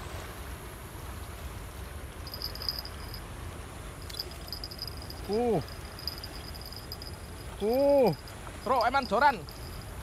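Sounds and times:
insect trilling in pulsing bursts: 0:04.0 - 0:10.0.

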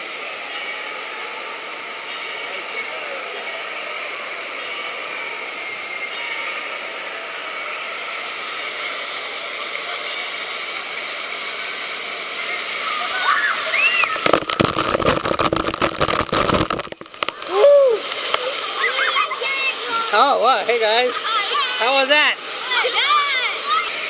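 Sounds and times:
rushing water: 0:00.0 - 0:24.0
heavy water deluge pounding: 0:13.8 - 0:21.8.

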